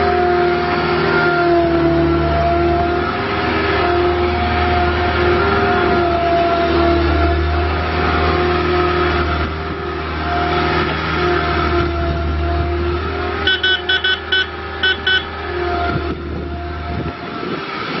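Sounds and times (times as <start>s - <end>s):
diesel engine whining: 0.0s - 18.0s
reverse alarm beeps: 13.5s - 15.3s.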